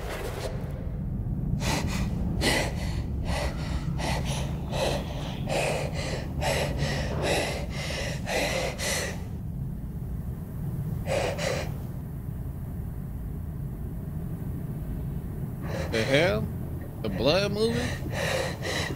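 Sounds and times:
low steady hum: 0.0s - 18.9s
woman panting heavily: 1.6s - 9.4s, 11.1s - 11.8s, 15.6s - 16.1s, 17.7s - 18.9s.

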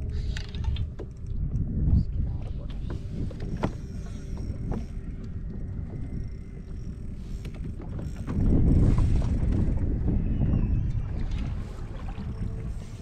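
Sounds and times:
mechanical creaking and clicking: 0.0s - 2.0s.

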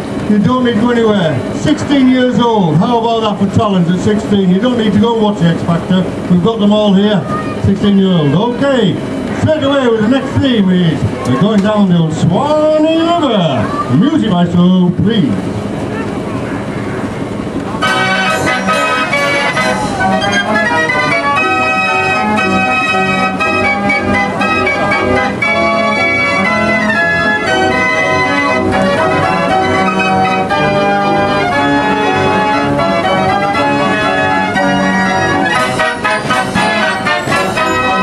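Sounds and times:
organ music: 0.0s - 7.0s, 17.1s - 38.0s.

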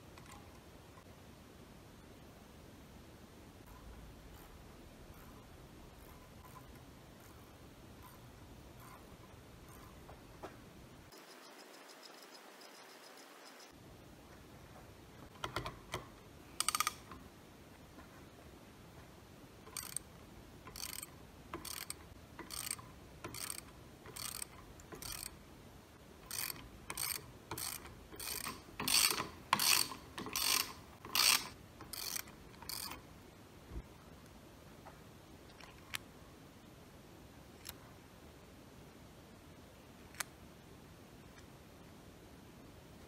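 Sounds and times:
socket ratchet wrench clicking: 15.4s - 17.2s, 19.7s - 20.1s, 20.7s - 25.4s, 26.3s - 33.0s.

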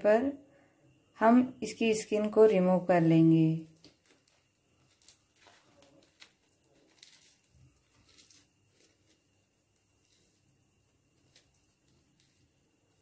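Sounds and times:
charred skin crackling and tearing: 3.6s - 13.0s.

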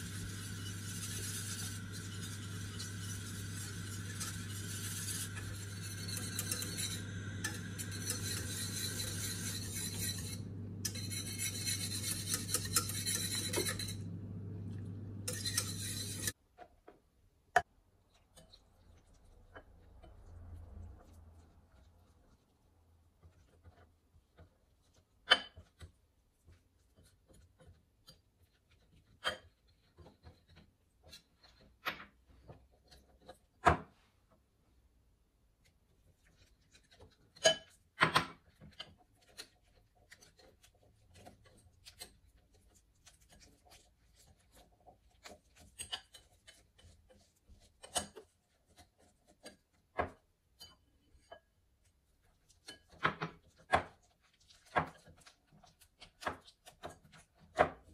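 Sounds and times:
whisk clinking against glass bowl: 0.0s - 14.2s, 15.2s - 16.3s, 37.3s - 38.9s
whisk scraping in bowl: 0.0s - 16.4s, 18.3s - 33.5s, 35.9s - 49.9s, 52.1s - 57.9s.

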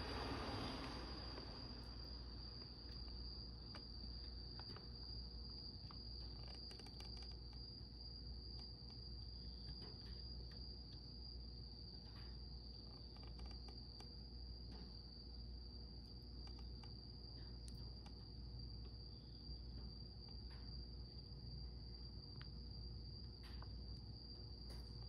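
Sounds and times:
low hum: 0.0s - 4.7s
cricket trilling: 0.0s - 25.0s
faint clicks: 16.4s - 18.2s.

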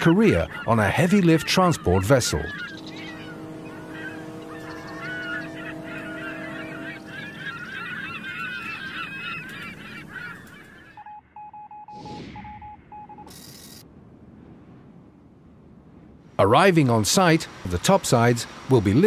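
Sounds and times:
low background rumble: 0.0s - 10.5s
birds honking: 0.0s - 11.4s
steady low tone: 1.4s - 10.1s
short electronic beeps: 11.0s - 13.8s.

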